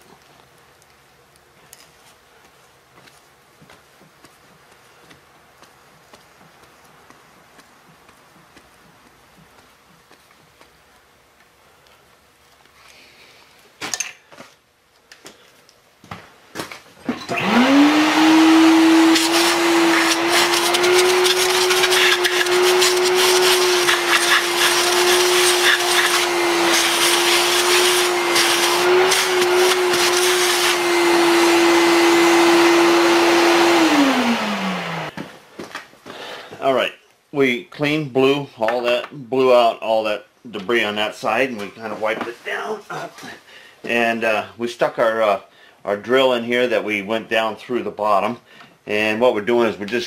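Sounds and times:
shop vacuum motor whine: 17.1s - 35.1s
rush of air through hose: 17.6s - 31.8s.

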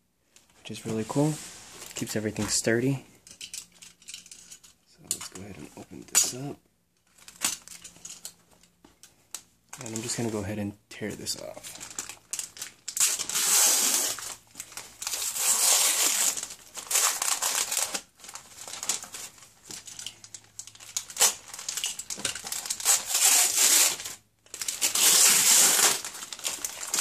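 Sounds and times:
paper ripping and crumpling: 11.7s - 19.4s, 20.9s - 27.0s.

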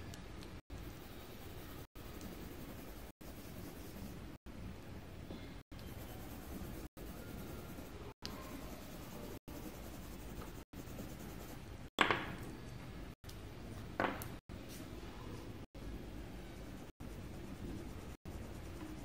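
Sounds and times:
coloured pencil scratching paper: 0.8s - 4.4s, 5.8s - 11.6s, 16.5s - 19.0s.

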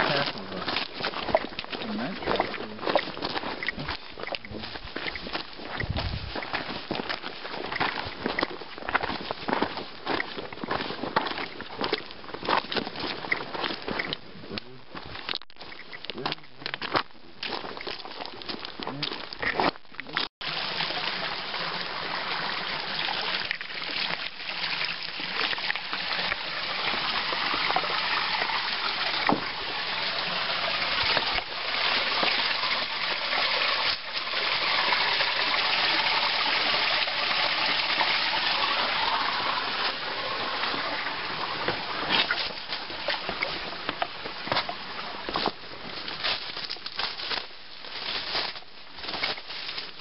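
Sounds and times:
creek water rushing: 0.0s - 8.4s, 20.4s - 50.0s.

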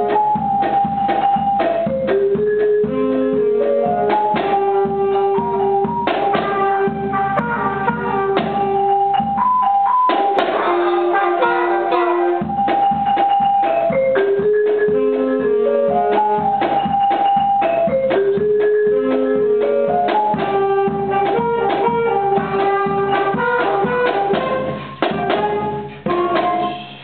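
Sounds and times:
sustained keyboard percussion notes: 0.0s - 27.0s
snare drum strokes: 4.0s - 9.4s, 20.0s - 27.0s.

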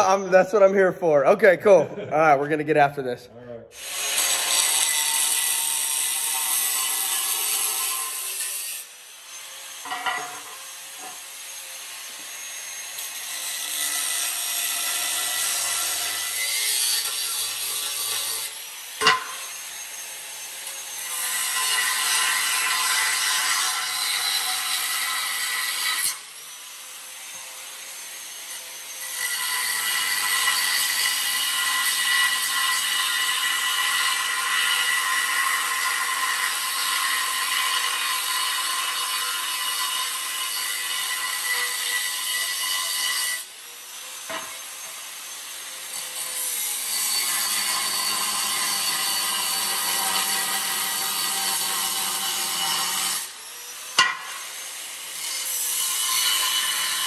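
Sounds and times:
angle grinder cutting steel: 3.7s - 57.0s
angle grinder free-running whine: 9.0s - 13.2s.

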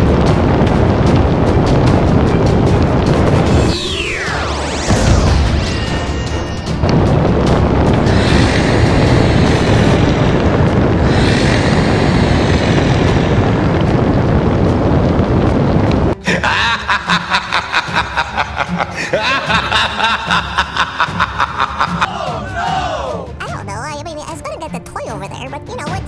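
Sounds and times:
explosions and rumble: 0.0s - 23.9s
background music: 16.1s - 26.0s.

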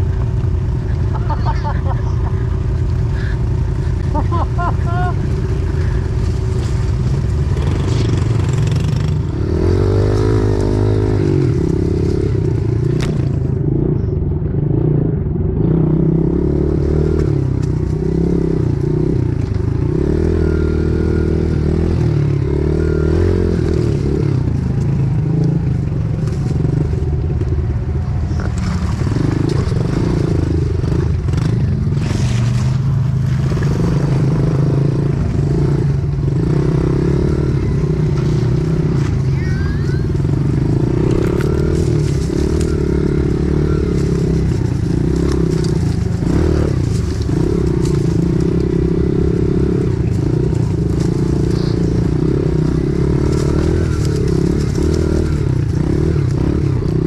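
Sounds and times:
small motorbike engine revving: 28.3s - 57.0s.

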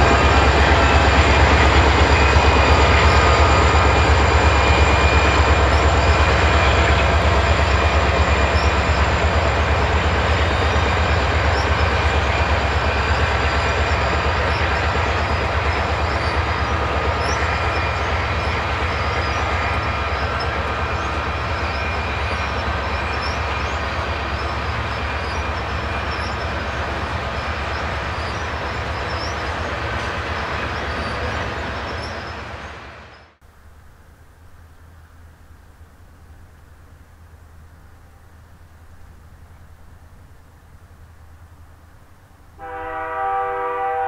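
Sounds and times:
boxcars rolling on rails: 0.0s - 33.4s
locomotive engines rumbling: 0.0s - 33.4s.

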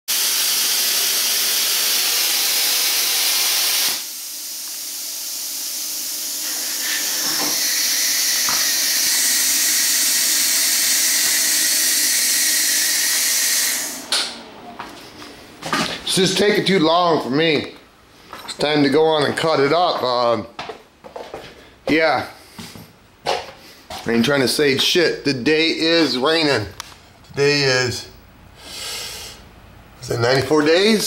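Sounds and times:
plasma cutter hissing: 0.1s - 14.2s.

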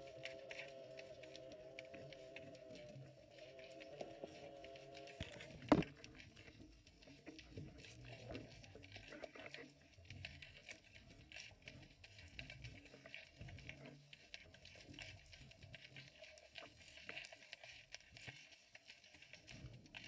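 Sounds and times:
underwater clicks and crackles: 0.0s - 20.0s
camera thumping sandy bottom: 5.2s - 5.9s.

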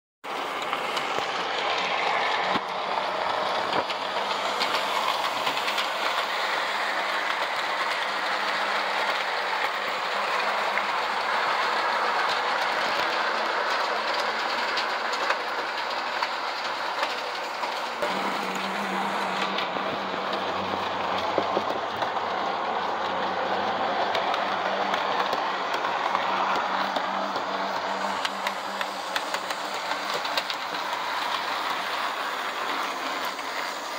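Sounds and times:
model train rolling on track: 0.2s - 33.9s
wheels clicking on rail joints: 0.2s - 33.9s
low motor hum: 17.8s - 33.9s.

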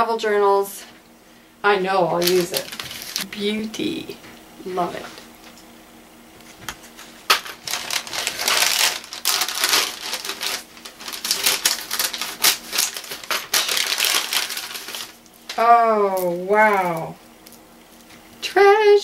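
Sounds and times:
paper wrapping crinkling: 2.2s - 3.3s, 6.4s - 15.6s.

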